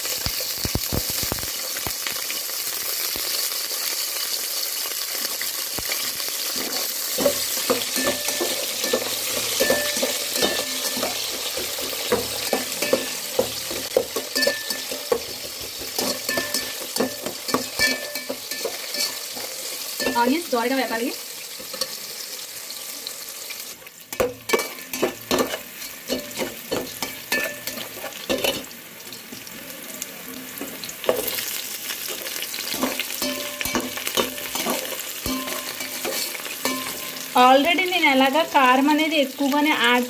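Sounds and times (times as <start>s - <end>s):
onions sizzling in oil: 0.0s - 40.0s
ladle scraping metal pot: 6.6s - 19.5s.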